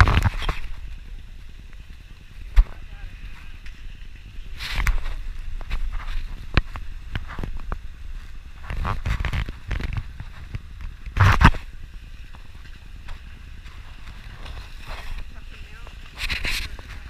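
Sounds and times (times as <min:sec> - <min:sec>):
tyres rumbling on snow: 0:00.0 - 0:17.0.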